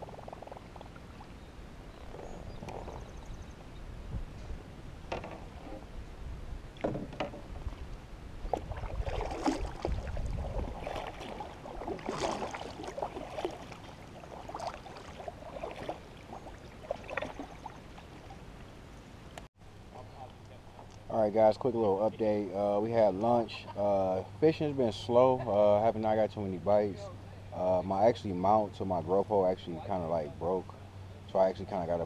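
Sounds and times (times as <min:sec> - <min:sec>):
paddle knocking against hull: 0:05.1 - 0:05.8, 0:06.8 - 0:07.8, 0:08.5 - 0:17.7
paddle splashing in water: 0:06.7 - 0:18.6.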